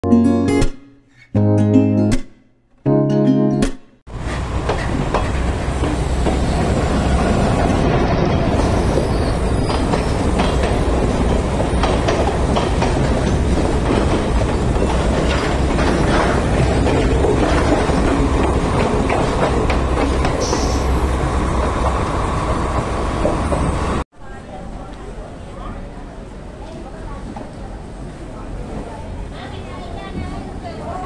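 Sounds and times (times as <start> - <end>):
train wheels clicking over track: 4.1 - 24.0
train coaches rumbling past: 4.1 - 31.0.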